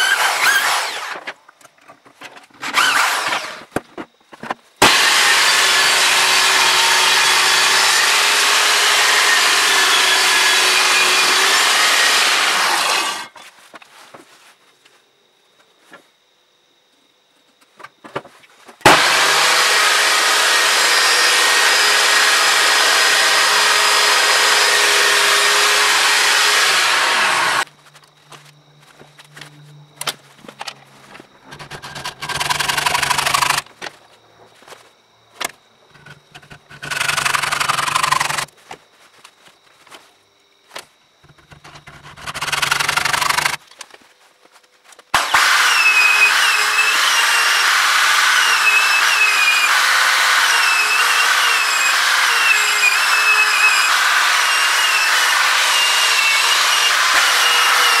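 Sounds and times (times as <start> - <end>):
sanding disc running: 4.8 - 13.4, 18.9 - 27.7, 31.5 - 33.6, 36.0 - 38.5, 41.2 - 43.6, 45.2 - 58.0.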